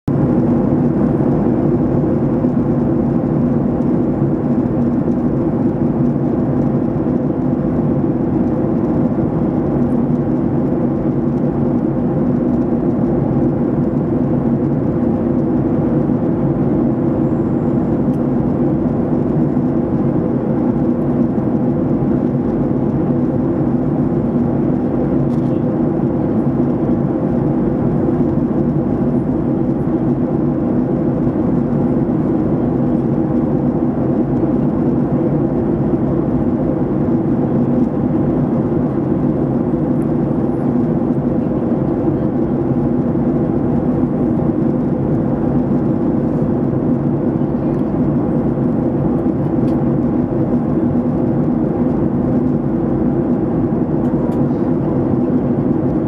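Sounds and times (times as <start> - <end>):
airliner cabin engine drone: 0.1 - 56.0.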